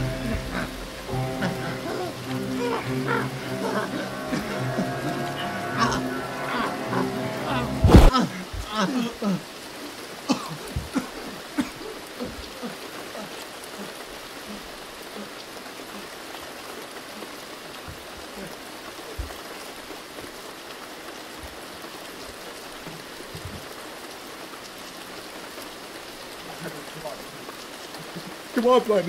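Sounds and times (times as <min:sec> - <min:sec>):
rain-like hiss: 0:00.0 - 0:29.0.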